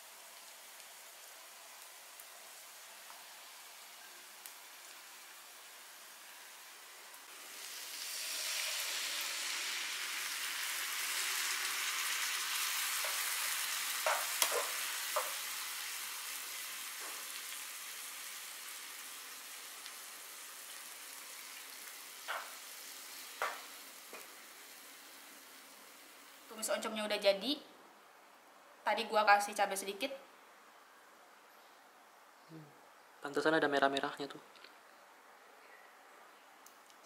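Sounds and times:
food sizzling in hot oil: 0.0s - 27.2s.

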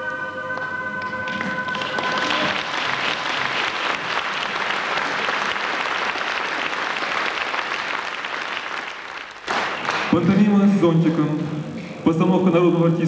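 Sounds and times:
held music notes: 0.0s - 5.0s
audience applauding: 0.6s - 10.2s.

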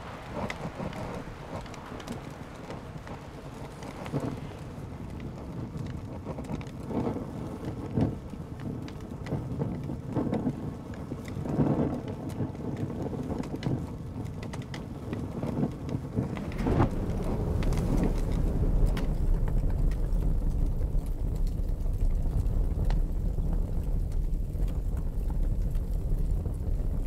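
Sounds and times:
paper burning crackling: 0.0s - 27.0s
low rumbles: 16.0s - 27.0s.

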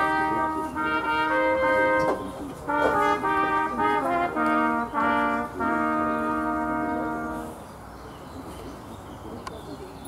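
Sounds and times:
trumpets holding a long chord: 0.0s - 7.7s.

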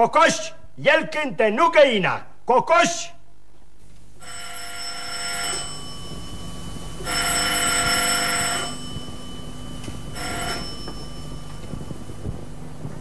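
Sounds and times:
telephone bell ringing: 4.2s - 13.0s.

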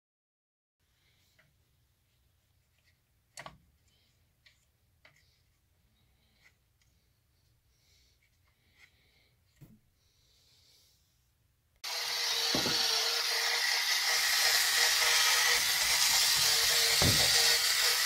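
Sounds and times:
toy car motor hiss and hum: 11.8s - 18.0s.

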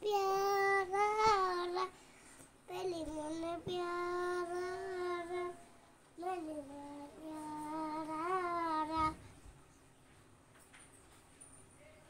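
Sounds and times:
girl singing unaccompanied: 0.0s - 9.4s
girl breathing: 1.9s - 2.6s.

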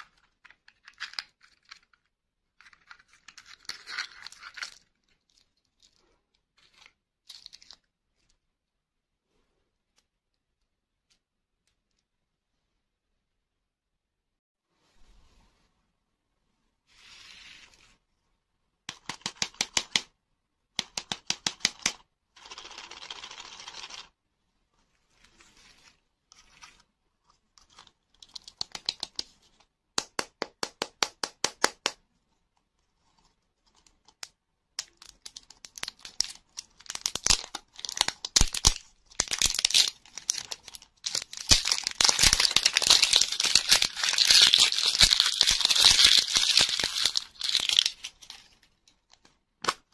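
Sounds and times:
plastic wrapper crackling: 35.0s - 49.3s.

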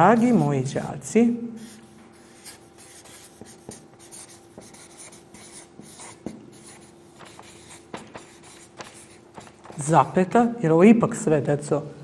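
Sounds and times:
marker pen scratching on paper: 0.0s - 0.6s, 1.6s - 10.0s
faint steady hum: 0.0s - 12.0s.

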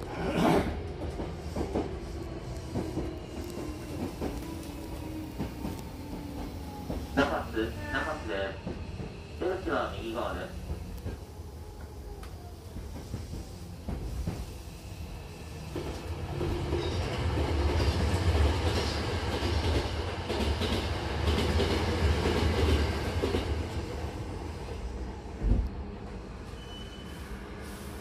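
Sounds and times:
train rumble and wheel clatter: 0.0s - 28.0s
brief high squeal: 26.5s - 27.3s.

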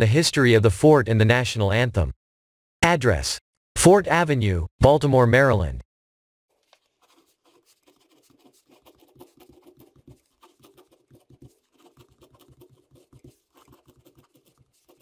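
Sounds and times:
pen scratching on paper: 6.6s - 15.0s.

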